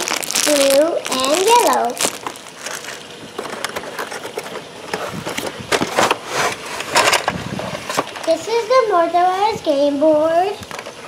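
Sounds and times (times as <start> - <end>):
cardboard scraping on plastic: 0.0 - 7.1.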